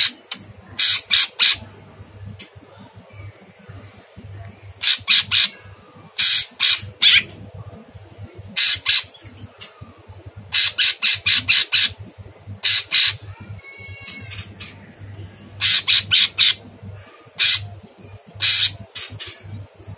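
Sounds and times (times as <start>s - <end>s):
bird giving harsh grating calls: 0.8s - 1.7s, 4.8s - 5.6s, 6.2s - 7.3s, 8.6s - 9.2s, 10.5s - 12.0s, 12.6s - 14.7s, 15.6s - 16.6s, 17.4s - 17.7s, 18.4s - 19.4s.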